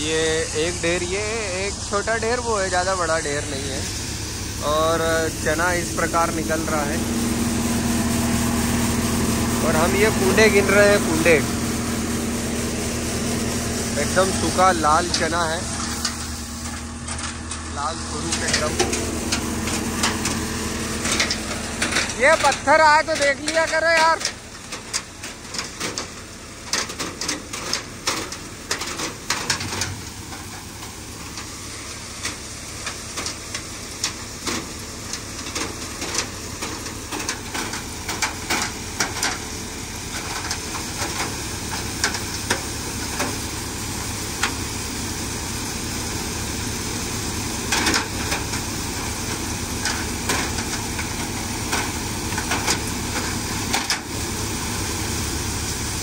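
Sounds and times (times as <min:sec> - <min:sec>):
low hum: 0:00.0 - 0:33.4
thresher running: 0:00.0 - 0:56.0
sharp clicks and knocks: 0:14.0 - 0:20.4, 0:21.0 - 0:31.5, 0:32.2 - 0:39.5.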